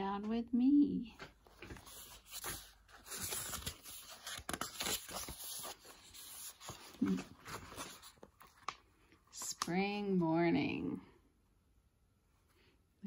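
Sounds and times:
book pages rustling: 0:01.2 - 0:10.2.

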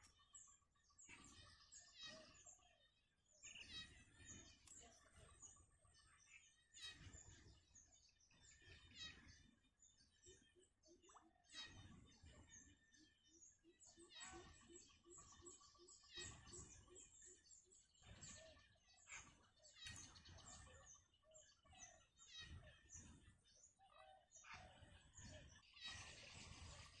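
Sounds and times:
chicks peeping and chirping: 0:19.2 - 0:27.0.

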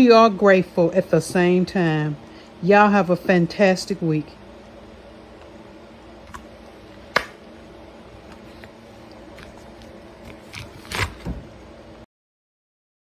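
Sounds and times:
steady low hum: 0:00.0 - 0:12.1.

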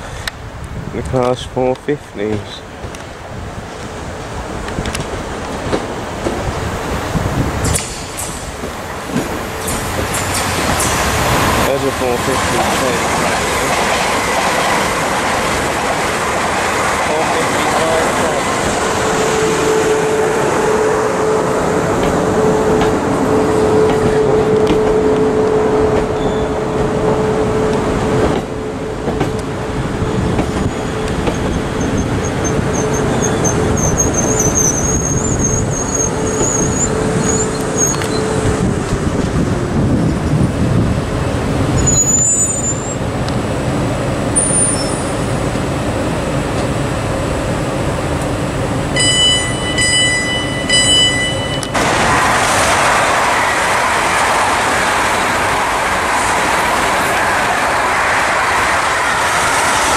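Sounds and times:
electric train rumble and motor tone: 0:00.2 - 0:59.9
faint high brake squeal: 0:26.2 - 0:26.6, 0:32.7 - 0:38.4, 0:41.8 - 0:43.0, 0:44.4 - 0:45.2.

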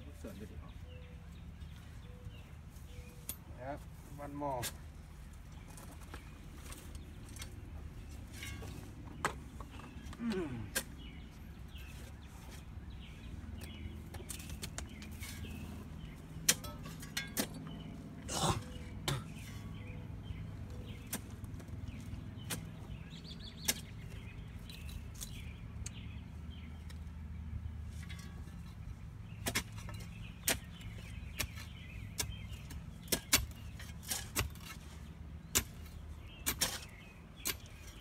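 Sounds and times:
digging tool striking soil: 0:16.4 - 0:17.8, 0:20.9 - 0:24.2, 0:29.3 - 0:38.0.

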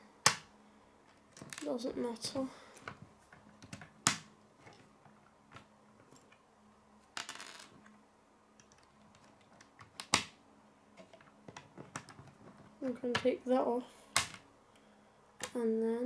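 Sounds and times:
plastic pieces clicking on table: 0:08.6 - 0:10.4.

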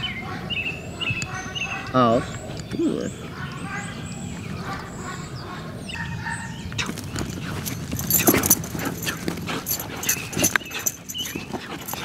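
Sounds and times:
chain collar jingling: 0:06.9 - 0:12.0
dog paws scuffing on grass: 0:06.9 - 0:12.0.

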